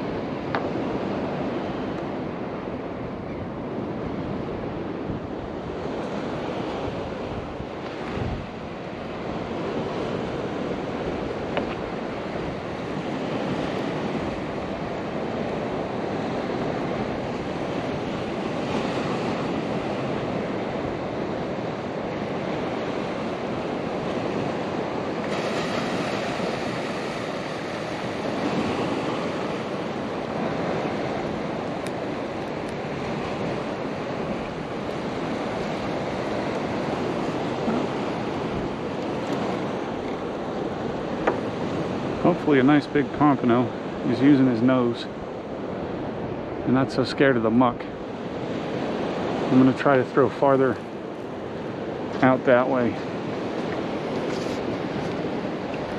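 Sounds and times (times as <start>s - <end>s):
wind buffeting microphone: 0.0s - 46.8s, 47.5s - 55.9s
ocean surf washing: 0.0s - 55.9s.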